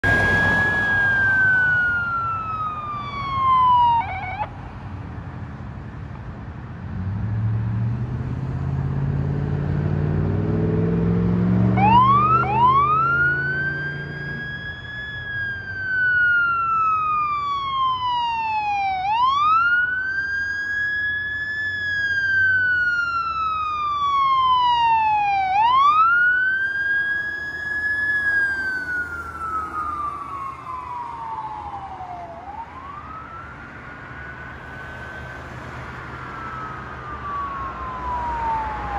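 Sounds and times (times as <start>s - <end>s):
fire engine siren wailing: 0.0s - 4.7s, 8.9s - 38.9s
heavy engine revving: 7.0s - 14.4s.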